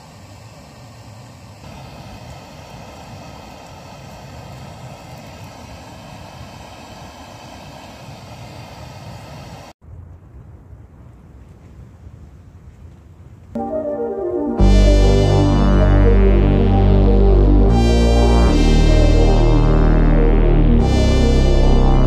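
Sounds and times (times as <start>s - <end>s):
gas heater hissing and rumbling: 0.0s - 9.7s.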